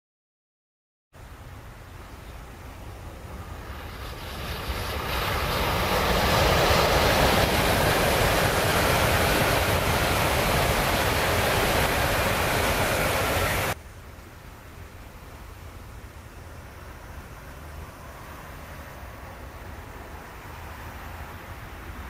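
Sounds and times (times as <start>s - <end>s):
bullet train rushing past: 2.5s - 13.8s.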